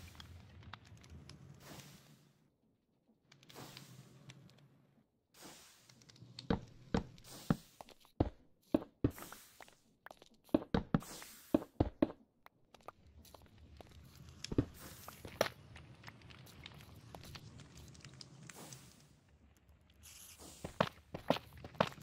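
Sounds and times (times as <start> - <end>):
hissing rustling noise: 20.0 - 21.0.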